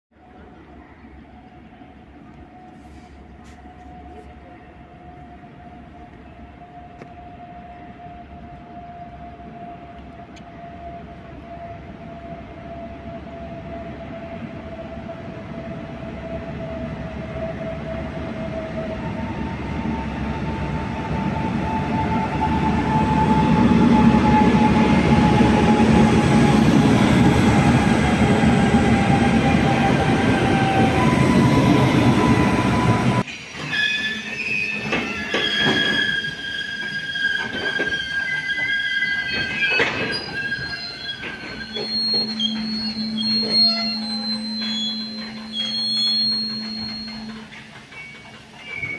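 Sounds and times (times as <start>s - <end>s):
electric locomotive whine: 0.2s - 48.9s
train clanks: 17.6s - 48.9s
wheel and brake squeals: 21.4s - 48.9s.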